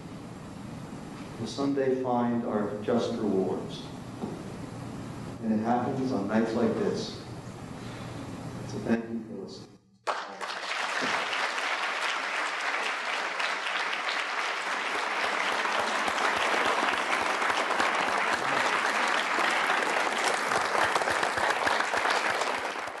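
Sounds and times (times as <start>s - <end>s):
audience applauding: 10.1s - 23.0s.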